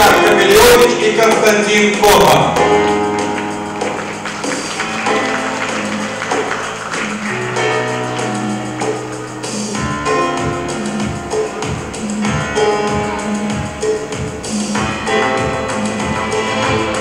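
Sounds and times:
instrumental music with bass: 0.0 - 17.0.

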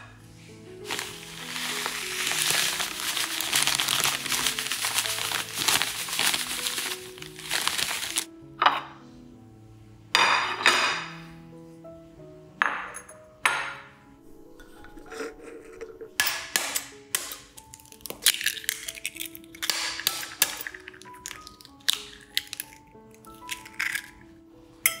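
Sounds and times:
bread crumbs pouring: 0.8 - 8.3, 17.7 - 24.2
plastic bag crinkling: 0.8 - 8.3, 17.7 - 24.2.

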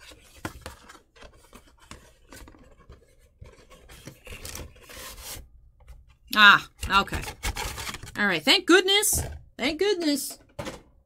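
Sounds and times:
packaging clicks and scrapes: 0.0 - 5.4, 7.1 - 8.2.

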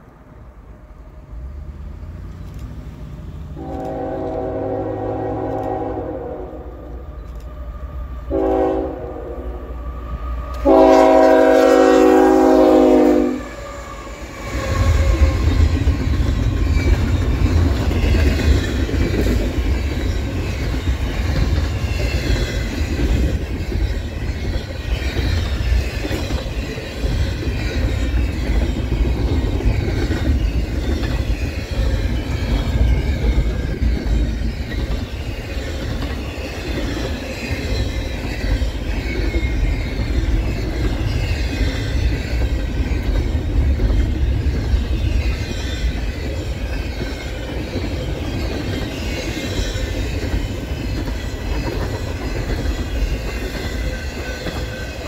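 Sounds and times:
diesel locomotives passing: 0.0 - 55.0
train rumble and wheel clatter: 0.0 - 55.0
locomotive horn blasts: 3.6 - 7.0, 8.3 - 9.8, 10.6 - 13.5.

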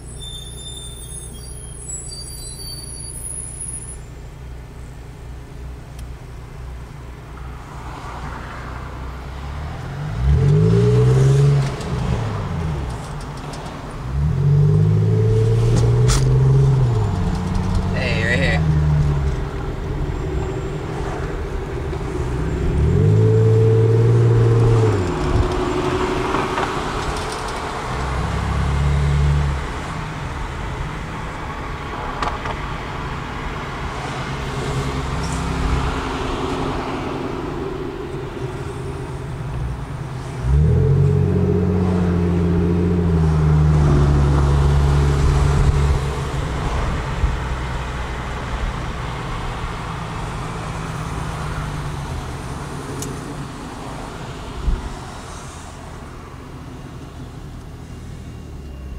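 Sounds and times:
road and traffic noise: 0.0 - 58.9
car engine revving: 9.4 - 31.3, 33.2 - 55.6.

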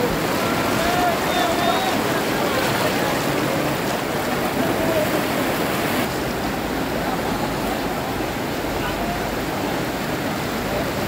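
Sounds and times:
faint voices: 0.0 - 6.0
floodwater rushing: 0.0 - 11.0.

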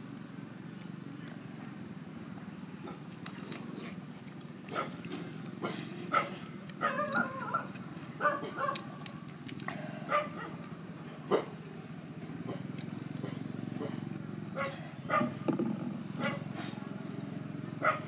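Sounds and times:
chicken being bitten and torn: 7.0 - 9.8.

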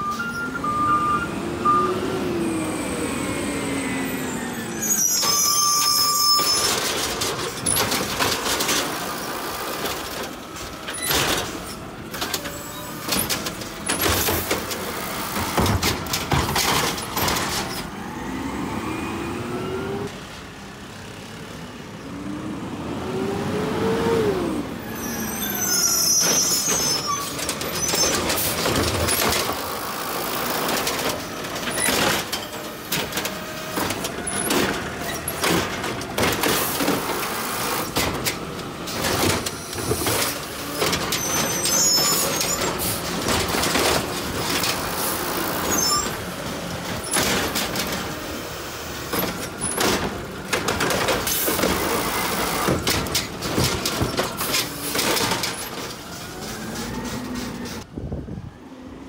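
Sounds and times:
garbage truck engine running: 0.0 - 19.5, 25.9 - 57.9
plastic carts knocking and banging: 6.4 - 17.9, 26.2 - 57.9.

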